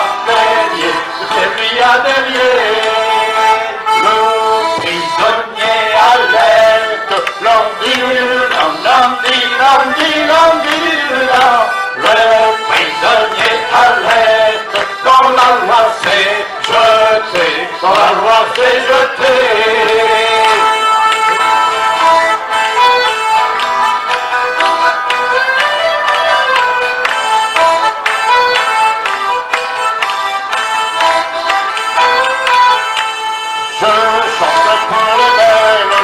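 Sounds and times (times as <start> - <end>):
voices singing: 0.0 - 23.4, 33.7 - 36.0
acoustic instruments: 0.0 - 36.0.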